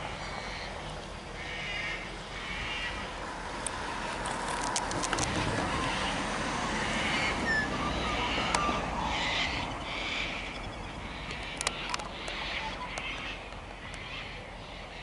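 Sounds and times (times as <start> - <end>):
birds calling: 0.0 - 15.0
car driving past: 1.7 - 11.5.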